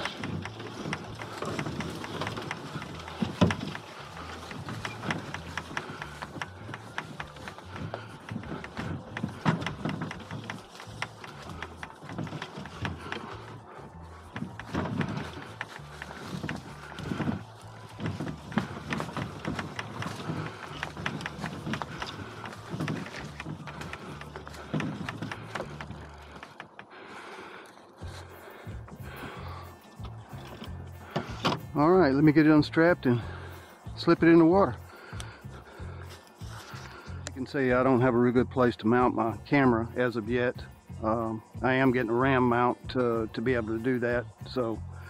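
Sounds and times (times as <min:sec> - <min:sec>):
footsteps thudding: 0:00.0 - 0:27.3
cart wheels rolling over leaves: 0:00.0 - 0:45.0.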